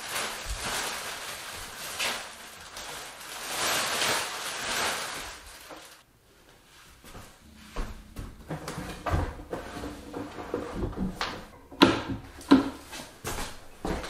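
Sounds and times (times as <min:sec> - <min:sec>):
plastic wrapping rustling: 0:00.0 - 0:06.1.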